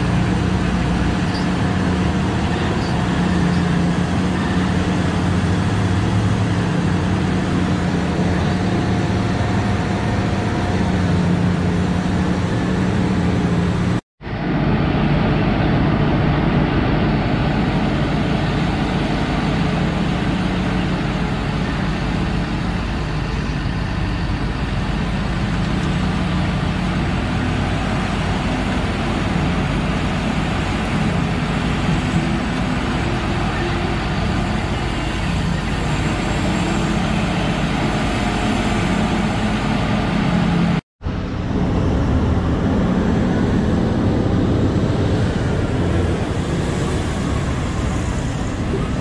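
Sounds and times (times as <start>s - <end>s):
heavy machinery engine hum: 0.0s - 49.0s
hydraulic excavator loading truck: 14.6s - 49.0s.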